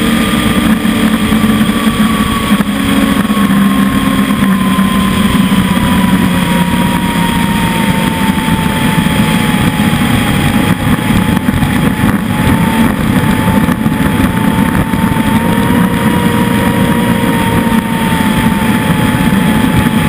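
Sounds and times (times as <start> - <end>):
motorboat engine running: 0.0 - 20.0
thin whine: 0.0 - 20.0
wind and water rushing: 0.0 - 20.0.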